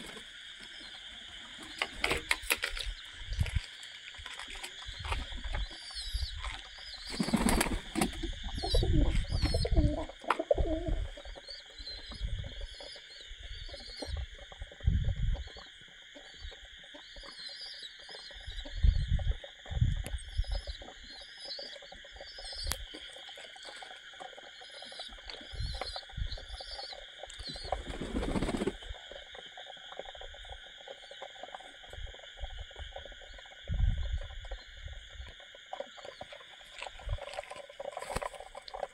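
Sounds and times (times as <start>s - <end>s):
high insect chorus: 0.0s - 38.9s
pigeon wings flapping: 7.1s - 8.2s, 27.7s - 28.9s.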